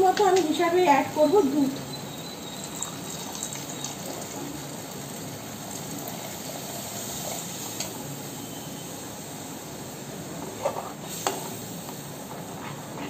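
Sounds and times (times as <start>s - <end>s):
milk pouring into metal pan: 2.4s - 6.6s.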